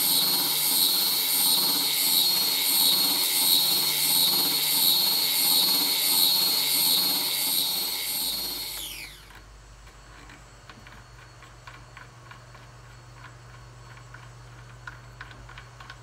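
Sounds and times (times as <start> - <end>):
spindle sander running: 0.0 - 9.4.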